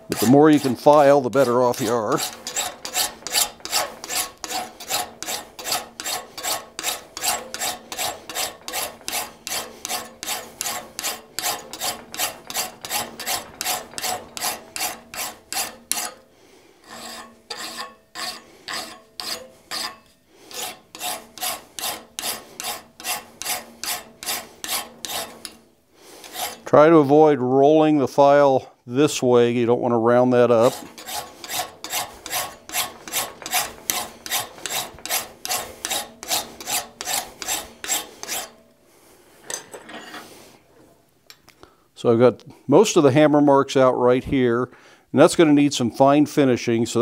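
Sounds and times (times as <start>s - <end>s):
file rasping on steel: 0.0s - 25.6s, 26.2s - 26.7s, 30.5s - 38.7s.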